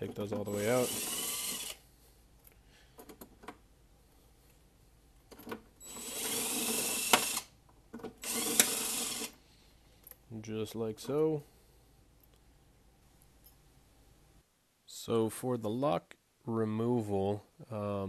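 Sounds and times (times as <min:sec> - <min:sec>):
cordless driver spinning: 0:00.4 - 0:01.8, 0:05.8 - 0:07.5, 0:08.2 - 0:09.4.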